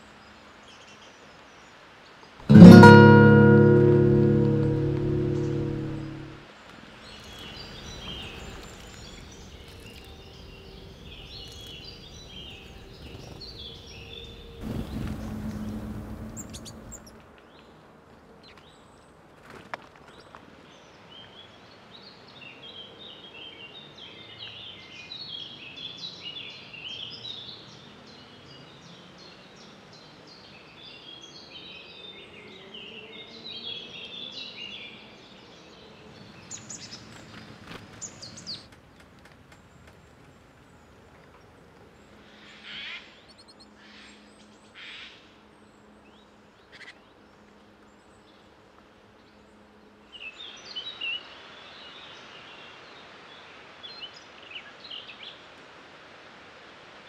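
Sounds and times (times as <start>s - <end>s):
low rushing noise: 14.6s - 17.1s.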